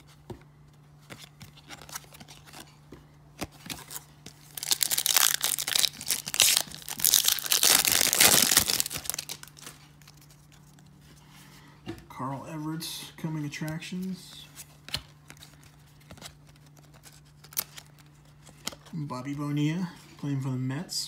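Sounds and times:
paper wrapper crinkling and tearing: 3.4s - 10.8s, 14.9s - 18.8s.

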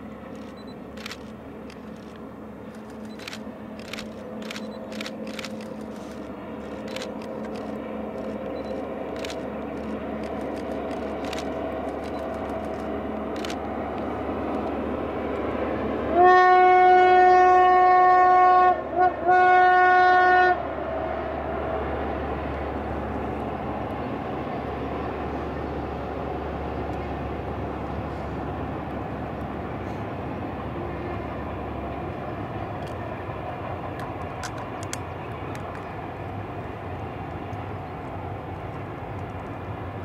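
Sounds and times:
freight train drone: 0.0s - 40.0s
locomotive horn: 15.9s - 20.6s.

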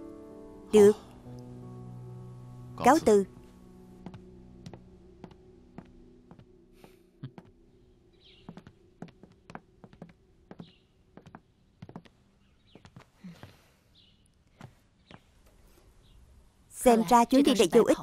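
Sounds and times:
footsteps on a hard floor: 4.0s - 7.5s, 8.5s - 12.1s.

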